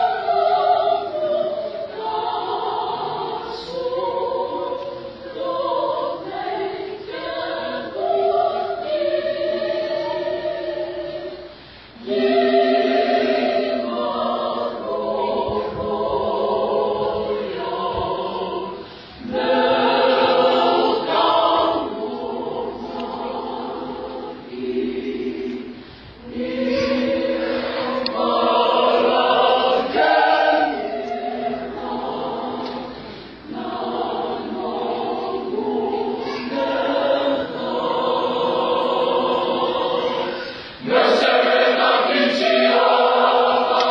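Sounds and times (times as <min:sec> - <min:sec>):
choir singing a hymn: 0:00.0 - 0:43.9.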